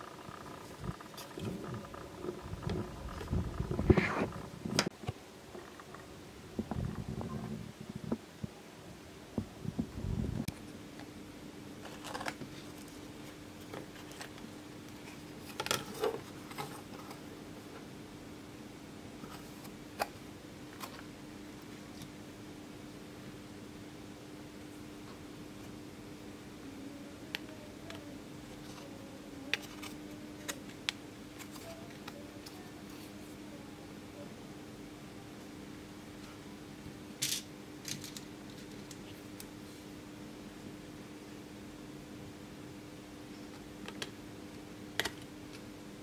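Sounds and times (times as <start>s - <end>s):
steady low hum: 0.0s - 46.0s
circuit board scraping and rustling: 0.2s - 4.9s.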